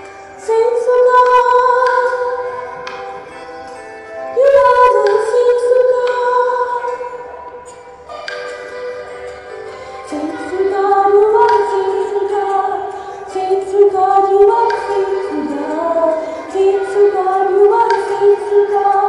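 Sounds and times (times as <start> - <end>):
woman singing slowly: 4.4 - 8.6, 10.1 - 19.0.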